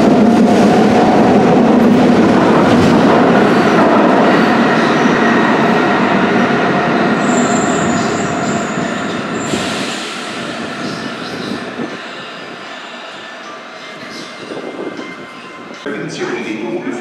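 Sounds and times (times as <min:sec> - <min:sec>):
train rumble in tunnel: 0:00.0 - 0:17.0
high wheel squeal: 0:07.2 - 0:10.2.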